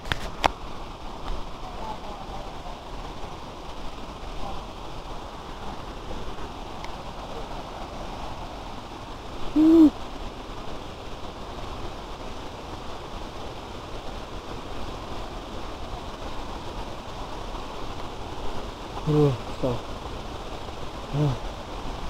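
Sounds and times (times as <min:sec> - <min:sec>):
distant waterfall rushing: 0:00.0 - 0:22.0
short loud hoot: 0:09.6 - 0:10.0.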